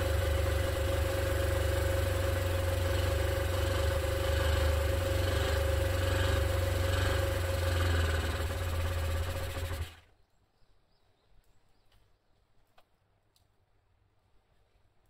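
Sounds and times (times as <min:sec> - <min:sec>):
two-stroke engine running: 0:00.0 - 0:10.1
faint clicks: 0:11.4 - 0:13.6.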